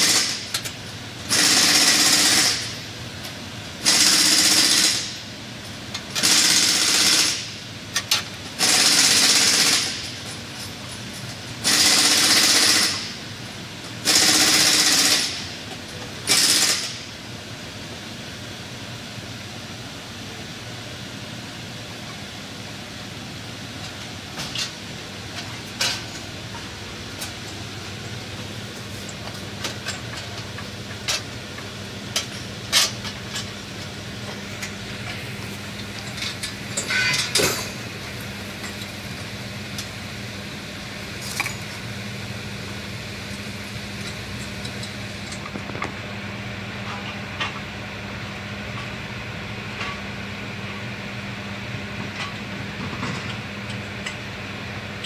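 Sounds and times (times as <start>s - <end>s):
pneumatic air tool hammering: 0.0s - 0.7s, 1.3s - 2.8s, 3.8s - 5.2s, 6.1s - 10.2s, 11.6s - 13.2s, 14.0s - 15.6s, 16.3s - 17.1s, 36.1s - 37.8s.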